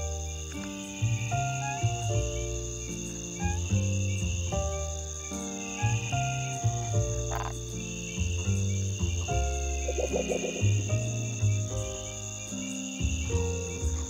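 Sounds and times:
crickets trilling: 0.0 - 14.0
gentle background music: 0.0 - 14.0.

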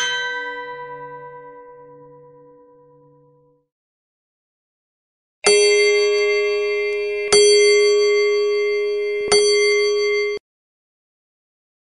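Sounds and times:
clock striking bell note: 5.5 - 10.4.

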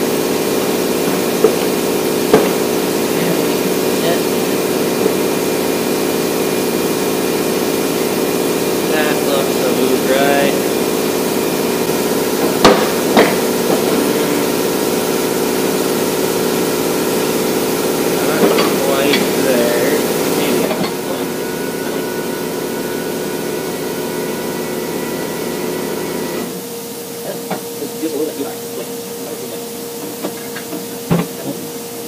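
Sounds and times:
workshop equipment humming: 0.0 - 32.0.

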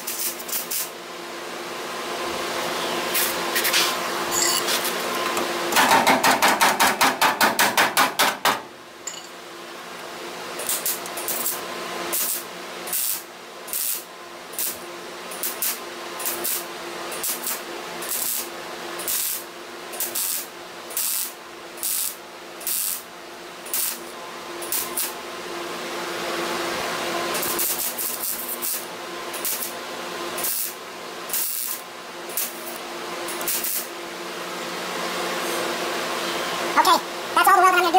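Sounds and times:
welder short bursts: 36.8 - 37.9.

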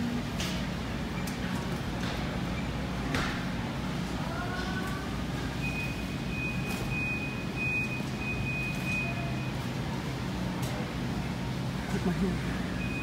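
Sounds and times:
supermarket background hum: 0.0 - 13.0.

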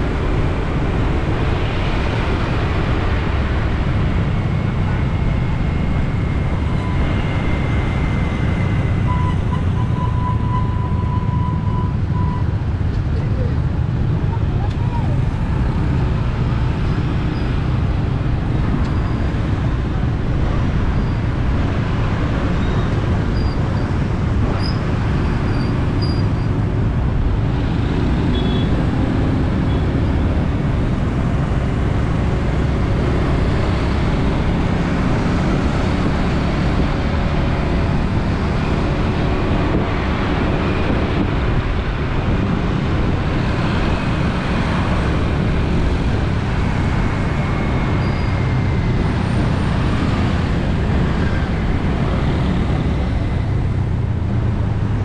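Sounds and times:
street traffic rumble: 0.0 - 55.0.

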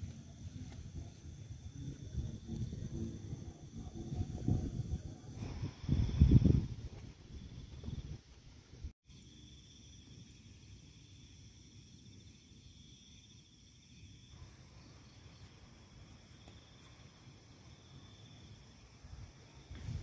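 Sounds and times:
low wind rumble: 0.0 - 9.0
night insects chirring: 0.0 - 20.0.

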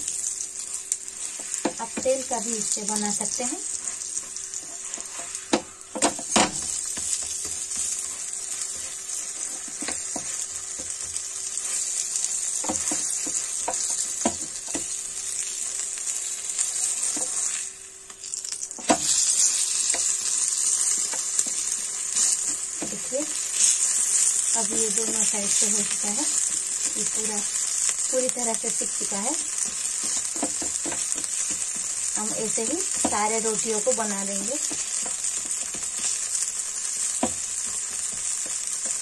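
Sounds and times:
flatbread sizzling in a pan: 0.0 - 39.0
spatula knocking on pan: 12.6 - 15.0, 29.6 - 31.9, 37.2 - 37.4.

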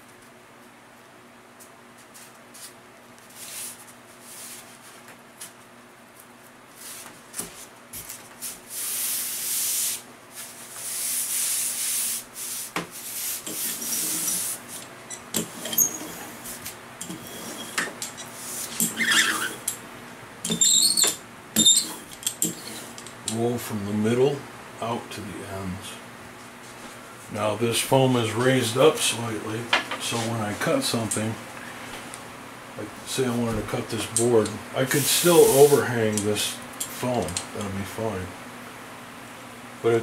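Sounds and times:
faint steady hum: 0.0 - 40.0
taps and small squeaks: 20.4 - 22.7.

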